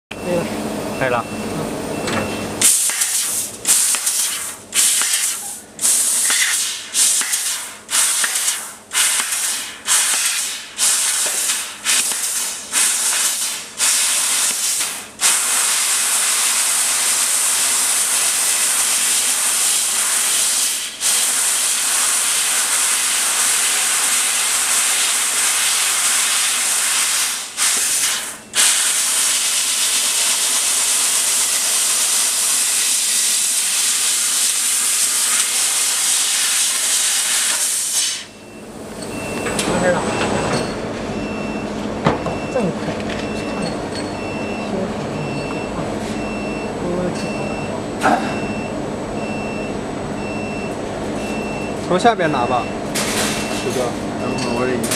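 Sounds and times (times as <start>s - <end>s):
laser cutter assist gas hiss: 2.6s - 38.4s.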